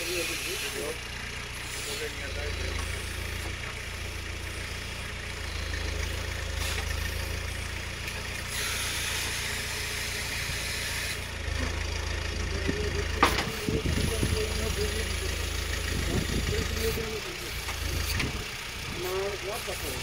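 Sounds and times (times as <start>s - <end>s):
backhoe digging soil: 0.0s - 20.0s
tractor engine running: 0.0s - 20.0s
hydraulic hiss: 8.4s - 11.3s.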